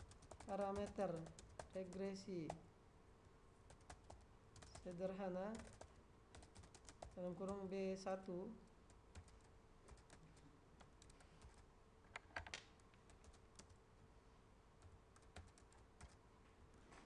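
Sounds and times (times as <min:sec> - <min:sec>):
computer keyboard keystrokes: 0:00.0 - 0:02.6, 0:03.7 - 0:07.6, 0:08.9 - 0:10.2, 0:12.2 - 0:13.8, 0:14.8 - 0:16.2.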